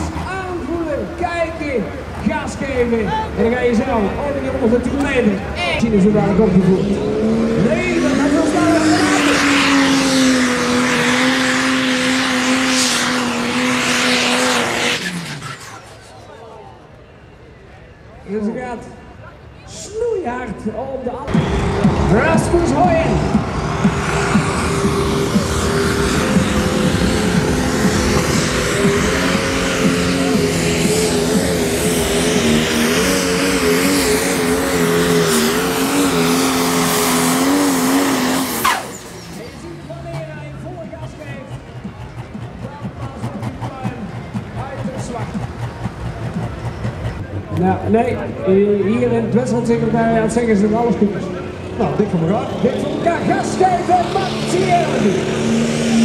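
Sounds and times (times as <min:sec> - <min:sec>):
pulling tractor engine running: 0:21.3 - 0:48.0.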